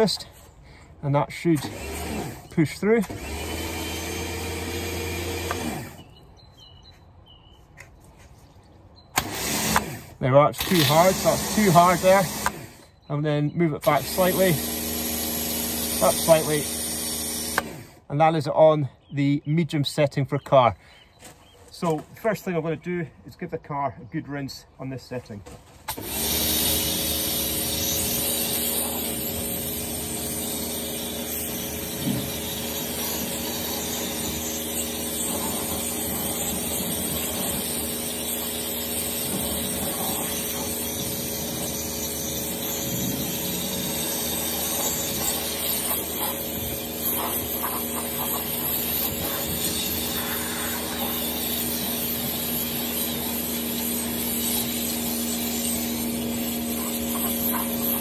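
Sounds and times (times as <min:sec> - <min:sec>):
pressure washer pump hum: 0:01.3 - 0:06.2, 0:09.2 - 0:12.9, 0:13.8 - 0:18.0, 0:25.9 - 0:58.0
water jet spraying on car: 0:44.4 - 0:58.0.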